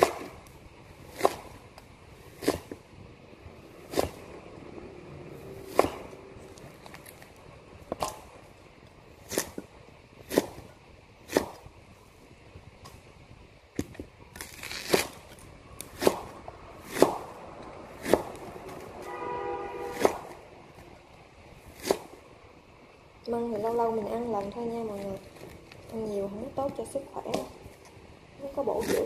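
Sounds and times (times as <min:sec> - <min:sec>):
knife chopping on cutting board: 0:00.0 - 0:00.4, 0:01.1 - 0:01.6, 0:02.3 - 0:02.8, 0:03.8 - 0:04.2, 0:05.6 - 0:06.2, 0:10.3 - 0:10.7, 0:11.3 - 0:11.7, 0:15.9 - 0:17.4, 0:18.0 - 0:18.4, 0:19.8 - 0:20.4, 0:21.7 - 0:22.2.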